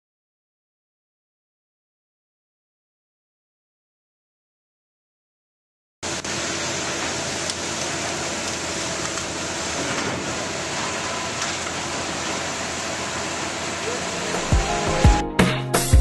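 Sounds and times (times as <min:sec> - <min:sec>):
hydraulic excavators rushing noise: 0:06.0 - 0:15.2.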